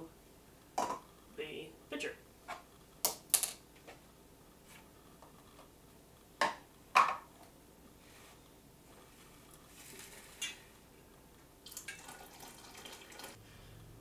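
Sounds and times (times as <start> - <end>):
kitchenware clicking and knocking: 6.4 - 7.3.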